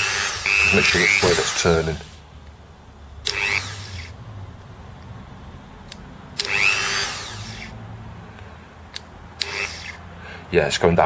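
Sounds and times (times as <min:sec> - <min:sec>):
rotary tool whine: 0:00.0 - 0:02.2, 0:03.2 - 0:04.2, 0:05.9 - 0:07.8, 0:09.4 - 0:10.0.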